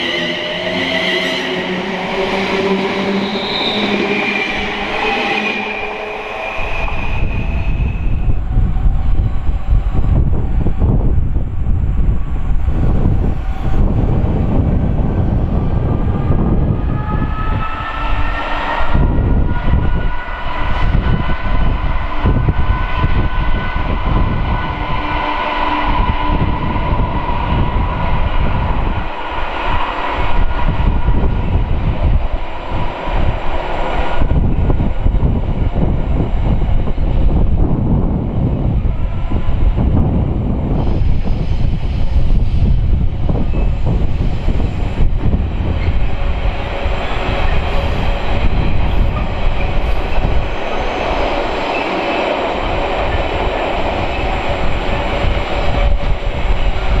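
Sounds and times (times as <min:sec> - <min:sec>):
train passing with rumble and whine: 0:00.0 - 0:57.0.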